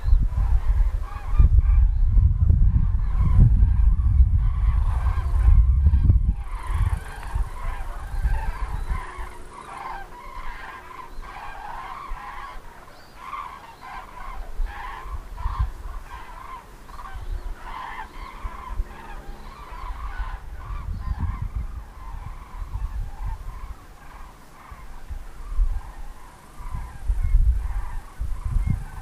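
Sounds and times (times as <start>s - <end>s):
cranes trumpeting calls: 0.0s - 2.1s, 2.7s - 29.0s
low rumble: 1.4s - 9.5s.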